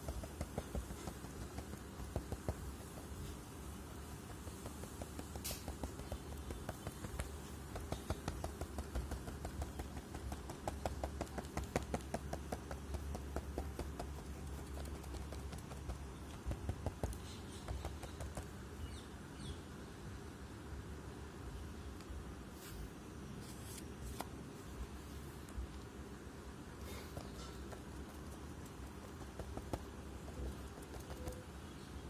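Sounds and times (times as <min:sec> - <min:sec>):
cotton swabs tapping on paper: 0:00.0 - 0:18.6, 0:26.9 - 0:31.5.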